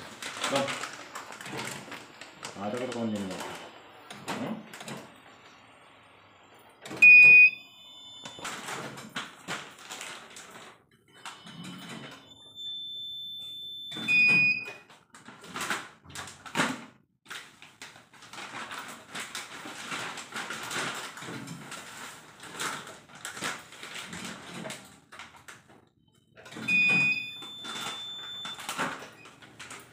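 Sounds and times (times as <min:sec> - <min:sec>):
plastic pouches crinkling: 0:00.0 - 0:03.7
machine electronic beeps: 0:07.0 - 0:08.4, 0:26.7 - 0:28.7.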